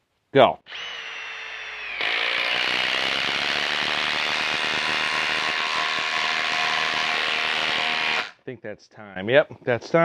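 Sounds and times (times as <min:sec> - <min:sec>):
motor whine spinning freely: 0:00.7 - 0:05.5
impact driver hammering: 0:01.7 - 0:08.4.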